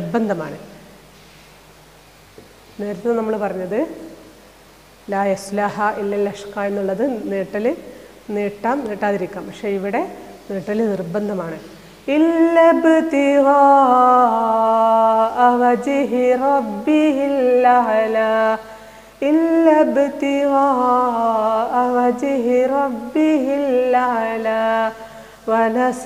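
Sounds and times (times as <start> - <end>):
woman chanting melodically: 0.0 - 0.8, 2.8 - 4.3, 5.1 - 26.0.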